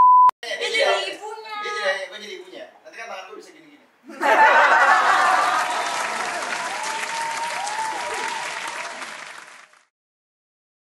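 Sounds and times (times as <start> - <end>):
applause with cheering: 5.3 - 9.9.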